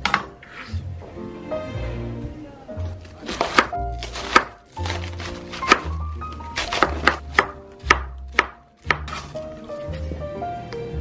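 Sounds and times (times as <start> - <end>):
cleaver chopping cabbage: 3.2 - 9.4.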